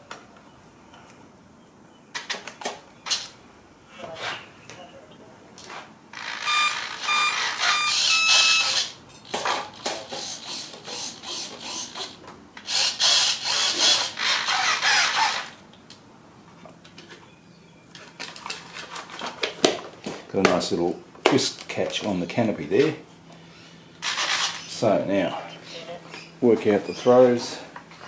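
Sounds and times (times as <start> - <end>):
short electronic beeps: 6.4 - 8.8.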